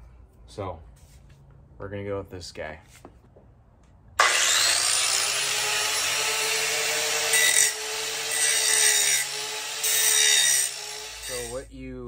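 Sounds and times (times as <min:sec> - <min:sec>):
angle grinder grinding metal: 0:04.2 - 0:11.6.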